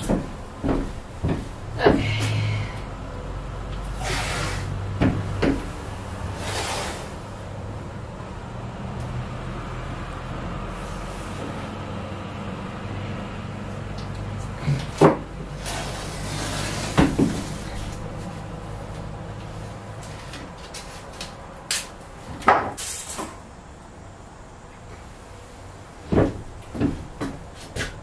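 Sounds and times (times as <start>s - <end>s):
knocks and clacks on metal floor: 0.0s - 2.4s, 5.0s - 5.8s, 26.1s - 28.0s
steady low hum: 0.0s - 28.0s.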